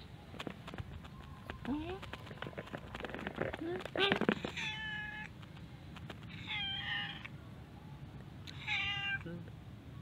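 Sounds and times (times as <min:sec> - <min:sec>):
cat meowing: 0:04.0 - 0:05.3, 0:06.3 - 0:07.3, 0:08.5 - 0:09.3.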